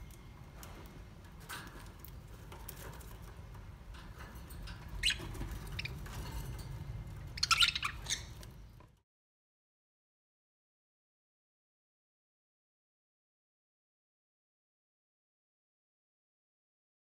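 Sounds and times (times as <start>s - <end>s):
budgerigars chirping: 5.0s - 6.1s, 7.3s - 8.5s.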